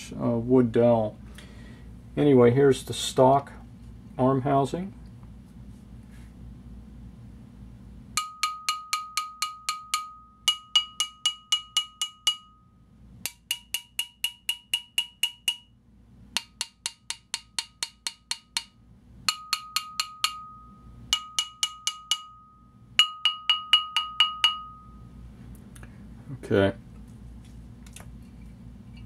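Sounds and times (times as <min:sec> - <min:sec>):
metallic ringing tones: 0:08.1 - 0:15.8, 0:16.4 - 0:25.4
wooden dowel tapping metal: 0:08.2 - 0:25.1.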